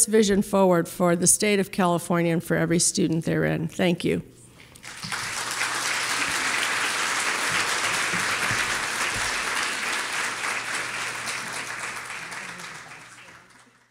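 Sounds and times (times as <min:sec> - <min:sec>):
audience applauding: 0:04.8 - 0:13.9.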